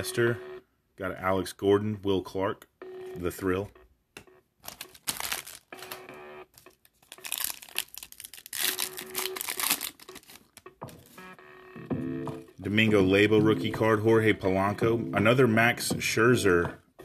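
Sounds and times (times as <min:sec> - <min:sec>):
foil wrapper crinkling and tearing: 0:04.6 - 0:11.1.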